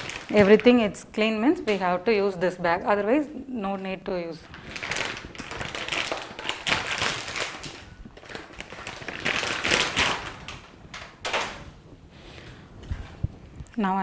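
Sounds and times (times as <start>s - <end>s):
plastic bag crinkling: 0.0s - 1.0s, 4.4s - 11.8s.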